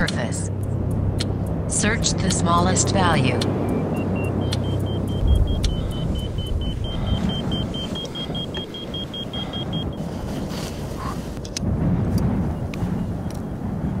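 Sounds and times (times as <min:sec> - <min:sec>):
rapid short high beeps: 0:03.7 - 0:10.0.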